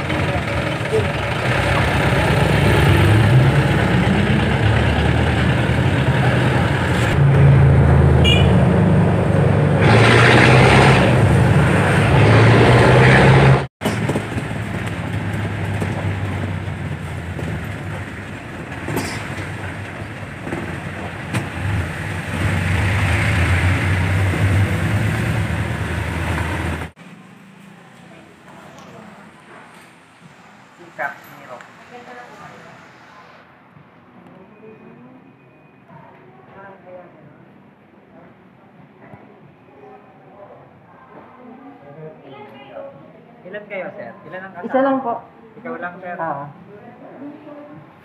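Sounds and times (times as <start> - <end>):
vehicle engine droning: 0.0 - 33.6
road noise: 0.0 - 40.0.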